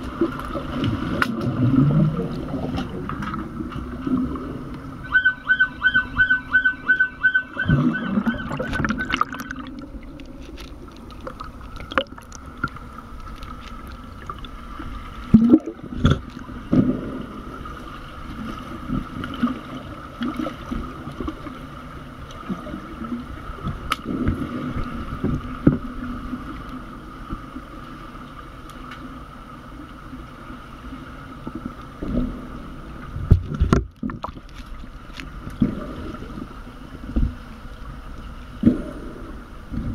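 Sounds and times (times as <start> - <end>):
bubbling: 0.0 - 21.6
underwater hum: 0.0 - 39.9
pulsed electronic beeping: 5.0 - 9.6
underwater thuds and knocks: 7.6 - 9.8, 15.3 - 17.1, 33.2 - 34.7.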